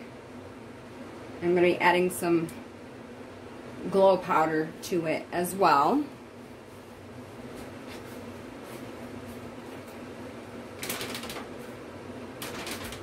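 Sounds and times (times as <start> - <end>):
fans humming and whooshing: 0.0 - 13.0.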